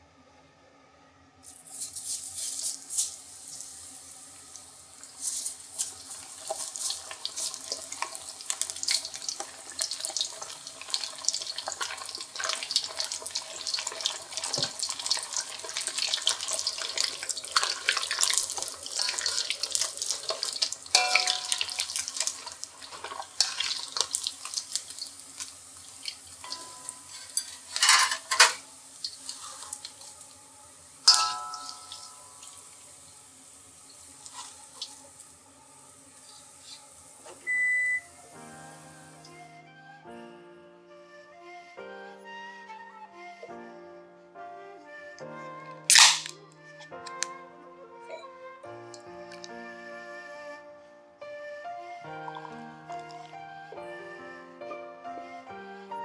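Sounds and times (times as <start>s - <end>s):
water running from tap into sink: 1.8s - 30.2s, 31.1s - 35.3s.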